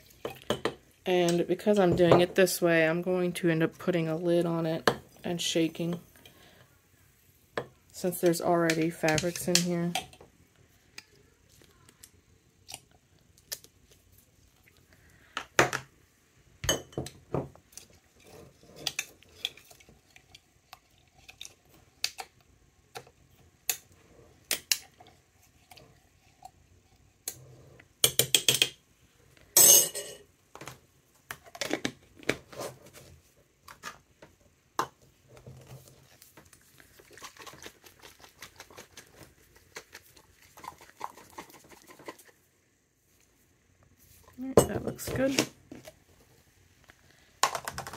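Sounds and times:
glass jar and bottles clinking: 29.6s - 30.2s.

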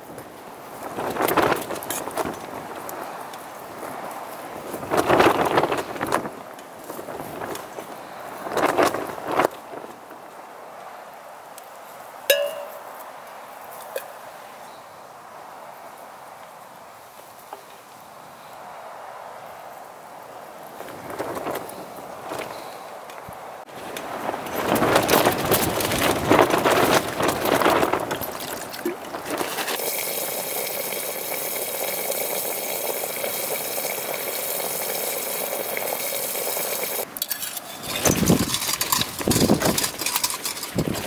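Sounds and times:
camping stove flame hissing: 29.6s - 37.7s
rustling of handling: 37.1s - 41.0s
metal utensil scraping a tin: 37.2s - 41.0s.

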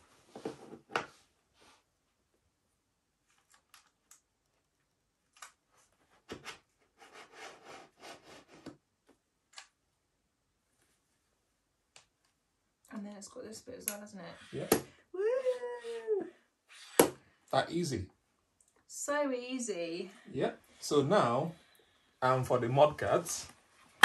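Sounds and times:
rubbing and scraping: 5.7s - 8.8s.

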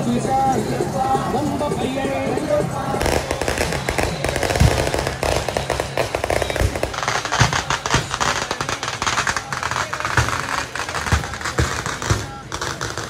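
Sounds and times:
firecrackers crackling: 0.3s - 13.0s
heavy firecracker bangs: 2.9s - 13.0s.

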